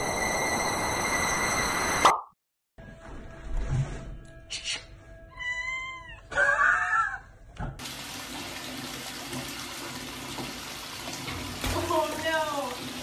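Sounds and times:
cat meowing: 0:05.3 - 0:07.2
tap running into bathtub: 0:07.6 - 0:13.0.

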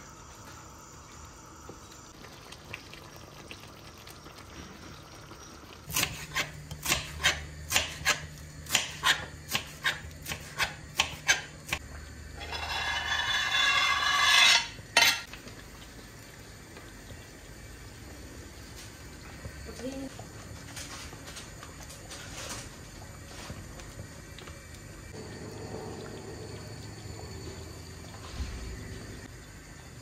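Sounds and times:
knife scraping board: 0:12.4 - 0:15.3.

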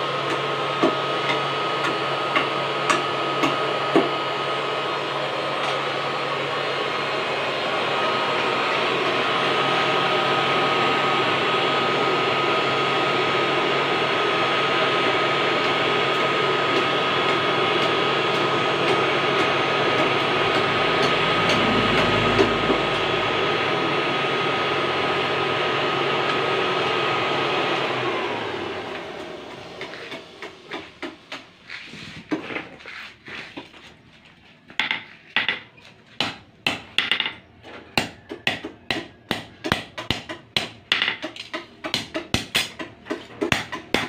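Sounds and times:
forge blower whining: 0:00.0 - 0:33.8.

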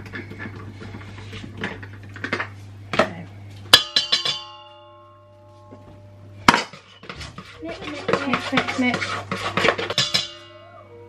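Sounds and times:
whisk striking metal bowl: 0:03.7 - 0:04.9, 0:06.5 - 0:10.6.

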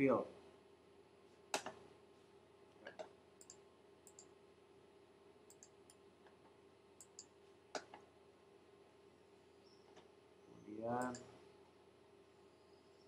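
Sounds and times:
computer mouse clicking: 0:02.9 - 0:04.3, 0:05.5 - 0:06.0, 0:07.0 - 0:08.0, 0:11.0 - 0:11.3.

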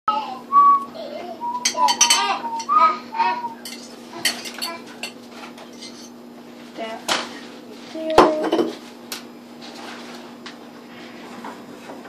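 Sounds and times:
utensil clinking against bowl: 0:01.6 - 0:02.7, 0:03.6 - 0:06.1.

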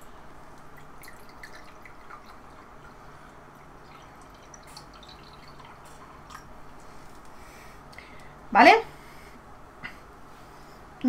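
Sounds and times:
water pouring into a glass: 0:00.8 - 0:06.5.

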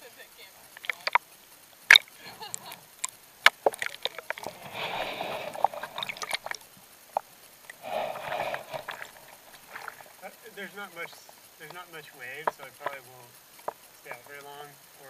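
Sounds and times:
washes of water: 0:00.6 - 0:14.5
water slapping against camera housing: 0:00.8 - 0:01.2, 0:01.9 - 0:10.3.

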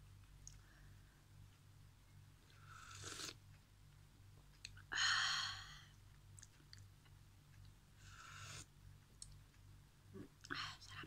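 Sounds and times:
slurping broth from a spoon: 0:02.8 - 0:03.4.

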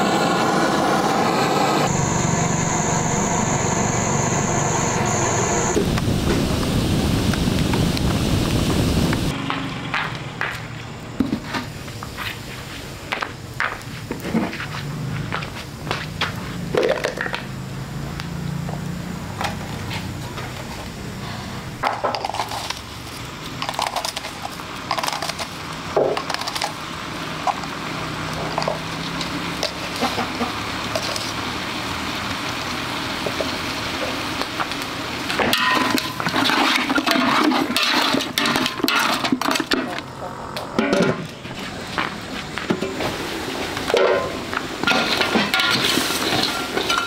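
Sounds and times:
wood fire crackling: 0:01.9 - 0:09.4, 0:31.0 - 0:39.6
utensils clattering: 0:35.5 - 0:39.9, 0:44.0 - 0:47.0.

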